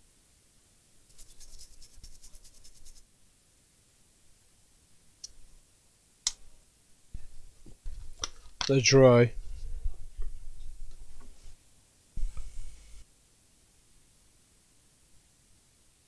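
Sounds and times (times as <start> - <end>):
toothbrush scrubbing circuit board: 1.1 - 3.0.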